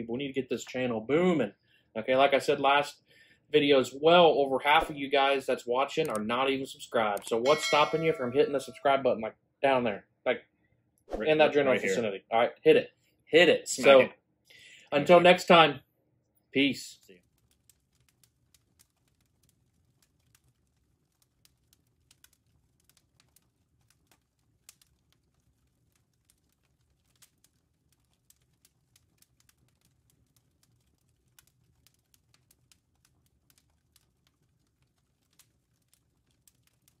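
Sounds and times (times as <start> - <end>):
faint crackling clicks: 6.0 - 6.3, 16.9 - 37.0.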